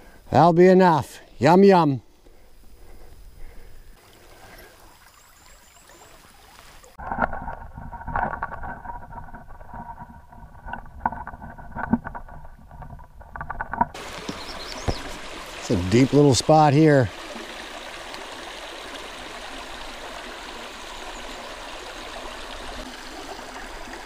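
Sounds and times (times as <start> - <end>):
faint outdoor background: 0.0 - 22.0
stream flowing: 0.6 - 24.0
small underwater clicks and knocks: 6.6 - 15.3
muffled underwater brook rushing: 14.0 - 24.0.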